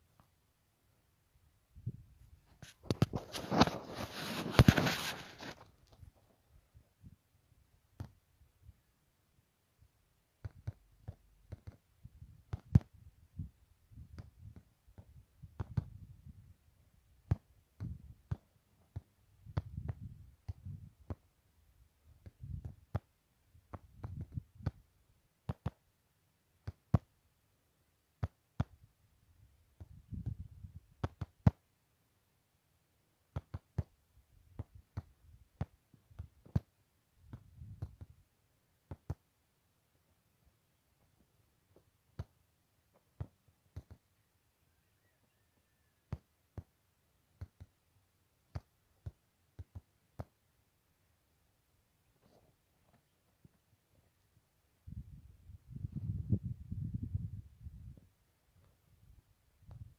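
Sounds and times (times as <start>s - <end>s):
wind buffeting microphone: 54.9s - 58.0s.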